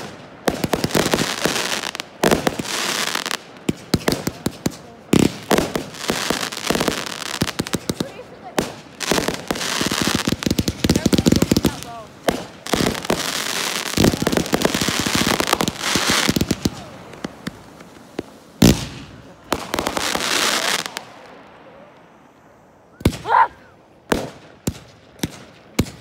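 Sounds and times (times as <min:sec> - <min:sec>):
fireworks bangs: 0:00.0 - 0:26.0
fireworks crackling: 0:00.0 - 0:26.0.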